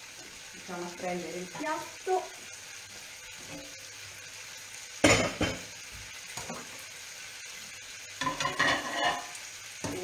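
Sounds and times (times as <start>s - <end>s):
pans sizzling: 0.0s - 10.0s
crockery clattering: 8.2s - 9.3s
plate clinking: 8.2s - 9.3s.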